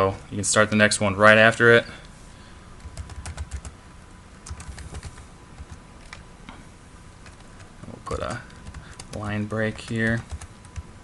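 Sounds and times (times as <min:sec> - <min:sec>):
keyboard typing: 0:02.8 - 0:03.8, 0:04.4 - 0:06.2, 0:07.2 - 0:10.9.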